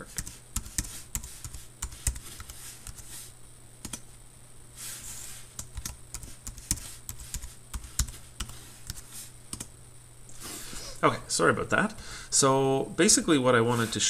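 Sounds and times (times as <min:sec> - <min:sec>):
keyboard typing: 0:00.0 - 0:03.1, 0:03.8 - 0:04.0, 0:05.6 - 0:09.7
low steady hum: 0:00.0 - 0:14.0.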